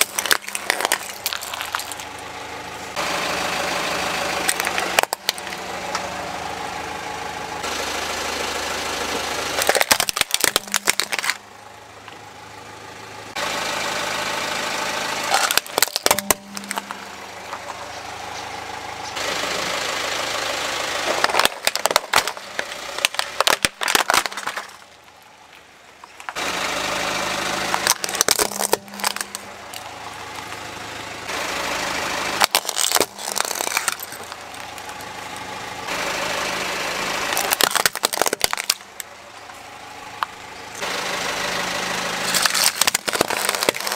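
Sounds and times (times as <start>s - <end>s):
plastic toys cracking under tyre: 0.0s - 2.3s, 4.4s - 5.6s, 9.5s - 11.4s, 15.3s - 17.0s, 21.0s - 26.4s, 27.6s - 30.5s, 32.4s - 35.5s, 37.2s - 39.1s, 42.2s - 43.9s
car engine running slowly: 0.0s - 43.9s.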